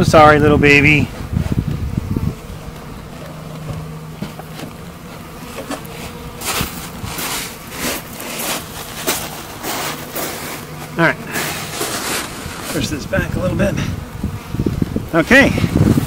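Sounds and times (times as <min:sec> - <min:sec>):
bees buzzing: 0:00.0 - 0:16.0
rustling crunches: 0:02.4 - 0:13.1.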